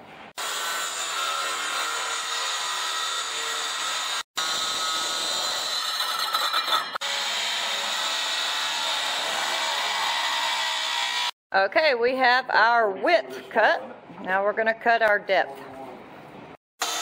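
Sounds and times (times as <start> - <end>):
circular saw cutting plywood: 0.4 - 11.4, 16.8 - 17.0.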